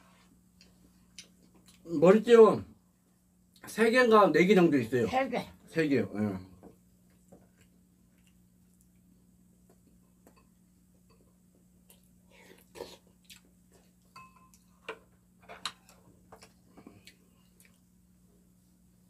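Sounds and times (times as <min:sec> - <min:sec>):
chewing: 0:07.0 - 0:09.1, 0:11.8 - 0:15.0, 0:15.6 - 0:18.0.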